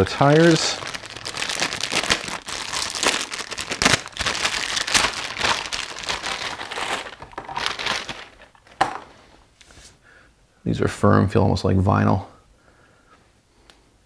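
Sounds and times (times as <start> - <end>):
plastic bag crinkling: 0.0 - 9.1.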